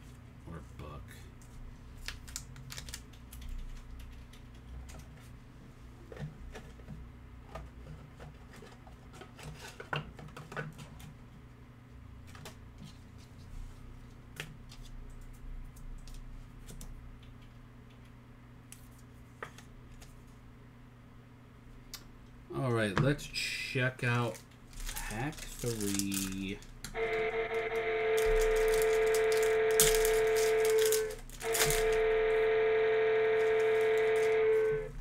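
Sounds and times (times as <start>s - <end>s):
steady low hum: 11.1s - 35.0s.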